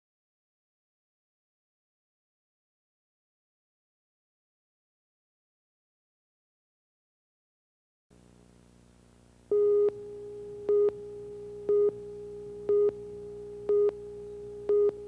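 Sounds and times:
countdown beep tone: 9.5s - 15.0s.

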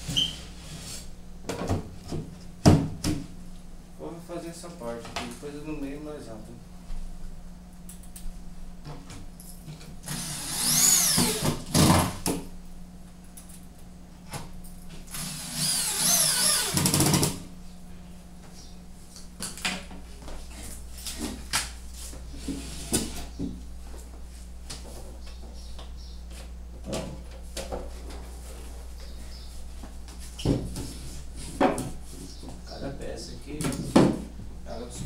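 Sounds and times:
drill-driver whining: 10.0s - 11.9s, 15.1s - 17.3s.

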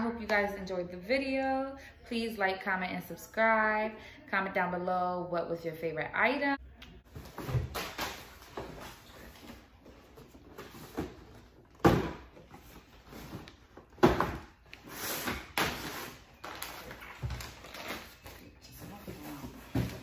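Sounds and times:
plastic packaging crinkling: 15.8s - 18.5s.

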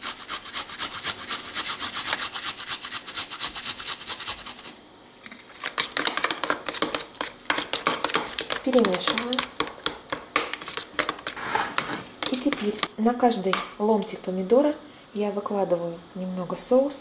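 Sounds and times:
spoon scraping plastic bowl: 5.3s - 12.9s.

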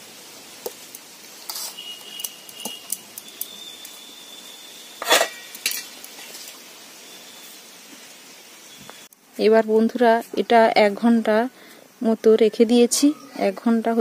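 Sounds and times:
dishes clattering: 5.0s - 5.9s
dishes clinking: 5.0s - 5.9s.

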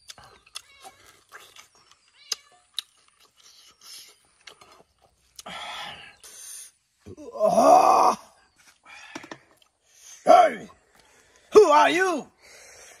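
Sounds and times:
smacks and clicks of eating: 0.0s - 5.5s.

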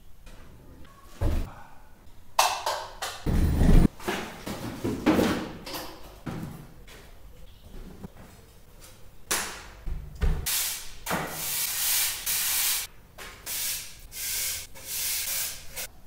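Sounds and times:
broom sweeping concrete floor: 10.5s - 15.9s.

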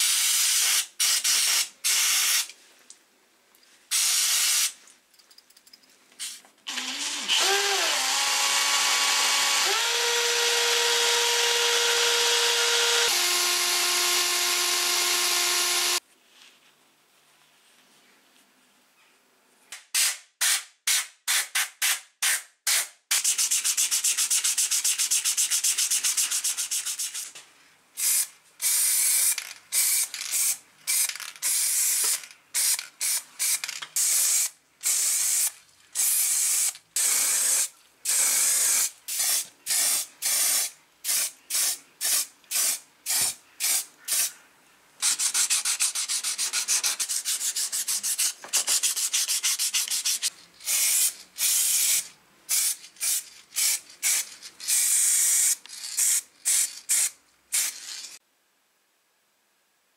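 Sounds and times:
sandpaper rubbing: 23.2s - 27.3s, 45.0s - 50.8s.

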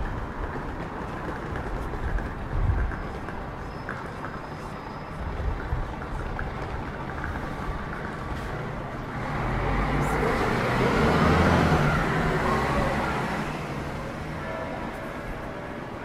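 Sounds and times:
street traffic: 0.0s - 16.0s
vehicle driving past: 8.4s - 14.3s.

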